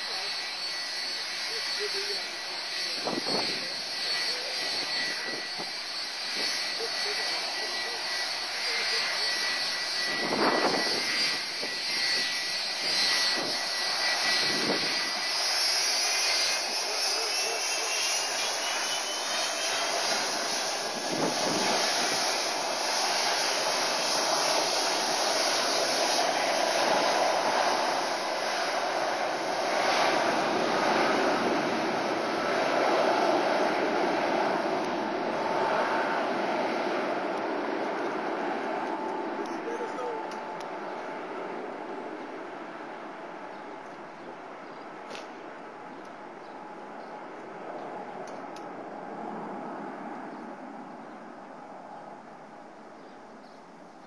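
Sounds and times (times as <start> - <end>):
high jet whine: 0.0 - 53.8
jet engines taxiing: 0.0 - 54.0.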